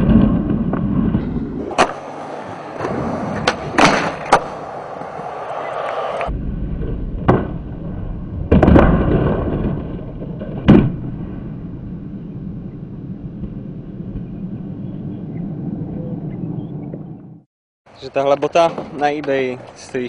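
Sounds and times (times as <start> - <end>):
skateboard landing slap: 0.0 - 2.1, 2.8 - 5.2, 7.2 - 7.7, 8.5 - 11.1
skateboard pop: 0.0 - 2.1, 2.8 - 5.2
skateboard clatter: 0.0 - 6.2
skateboard wheels rolling on concrete: 0.0 - 17.4, 18.0 - 20.0.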